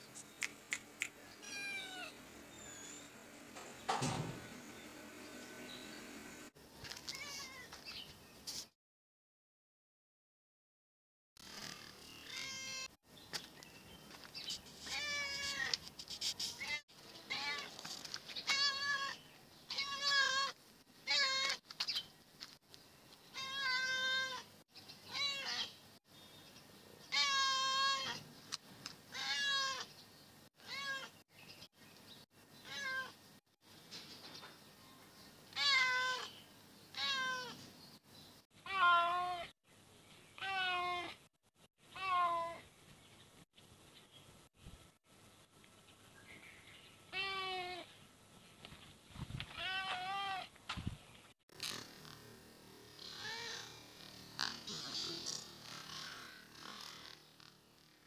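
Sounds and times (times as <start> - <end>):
cat meowing: 1.4 - 2.2, 7.0 - 7.7, 12.2 - 12.9, 14.9 - 15.8, 16.6 - 17.7, 18.5 - 21.6, 23.3 - 24.5, 25.1 - 25.7, 27.1 - 28.2, 29.1 - 29.9, 30.6 - 31.2, 32.6 - 33.1, 35.5 - 36.3, 36.9 - 37.6, 38.6 - 39.5, 40.4 - 41.2, 42.0 - 42.6, 49.6 - 50.5, 53.1 - 53.8.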